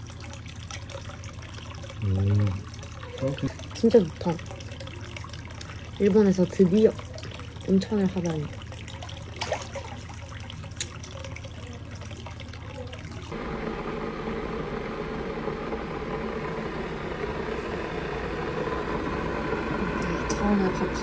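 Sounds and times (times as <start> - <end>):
water trickling and lapping: 0.0 - 13.4.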